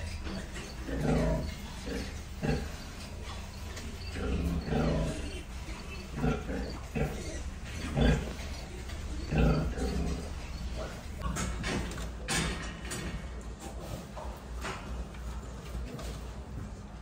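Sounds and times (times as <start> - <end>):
pig grunting: 0.0 - 12.3.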